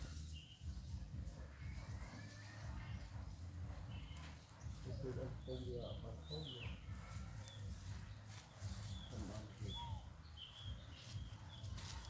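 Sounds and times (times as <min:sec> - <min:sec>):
steady low rumble: 0:00.0 - 0:09.4
small animals chirping and squeaking: 0:00.0 - 0:12.0.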